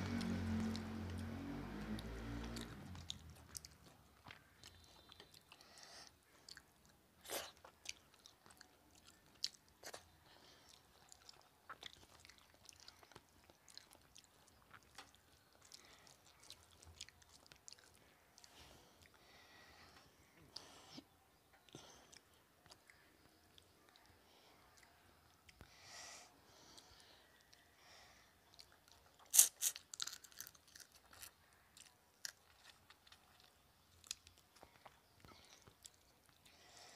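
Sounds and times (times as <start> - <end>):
chewing and biting: 0.1 - 19.3, 28.4 - 36.6.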